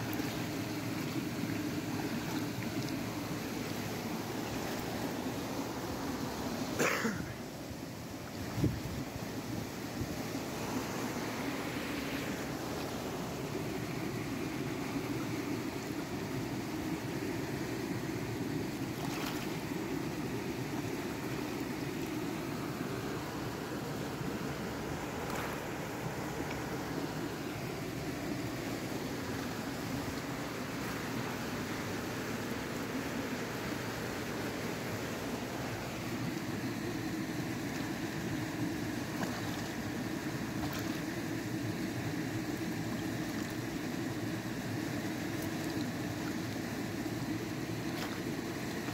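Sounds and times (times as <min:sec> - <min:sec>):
shallow stream rushing: 0:00.0 - 0:48.9
steady rushing noise: 0:10.0 - 0:15.8.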